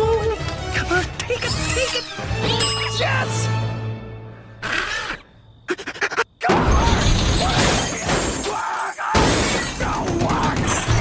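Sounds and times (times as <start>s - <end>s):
music: 0.0s - 4.6s.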